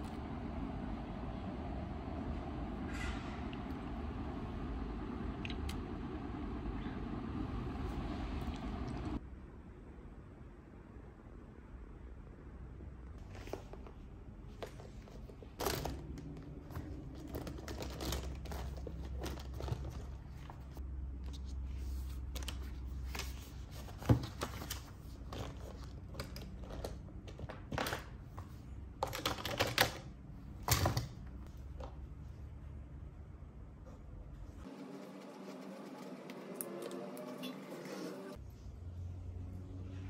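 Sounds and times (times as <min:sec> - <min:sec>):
notebook pages rustling: 0:13.2 - 0:28.6, 0:34.6 - 0:38.4.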